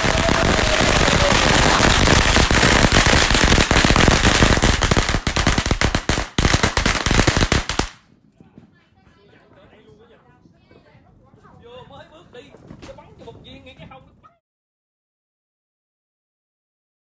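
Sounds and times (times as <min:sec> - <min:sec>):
string of firecrackers crackling: 0:00.0 - 0:08.6.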